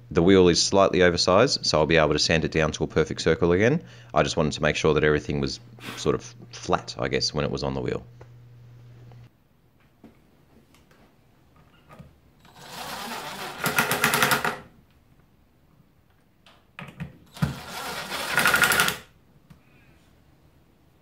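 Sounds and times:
impact driver driving screws: 12.4s - 14.7s, 17.3s - 19.1s.

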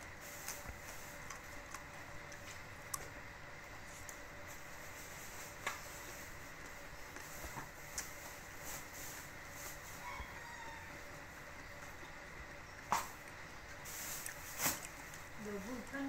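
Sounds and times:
faint steady hum: 0.0s - 16.0s
faint animal call: 10.0s - 11.2s.

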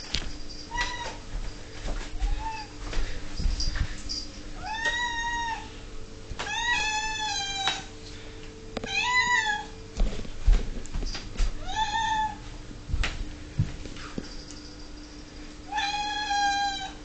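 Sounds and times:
cat meowing: 4.6s - 5.7s, 6.5s - 7.9s, 15.7s - 17.0s.

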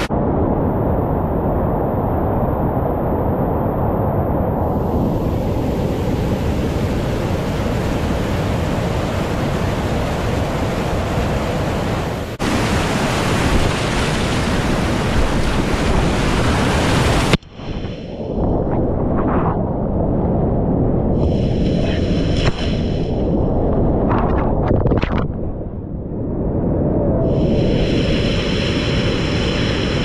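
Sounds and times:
whitewater rushing over a drop: 6.0s - 17.9s.

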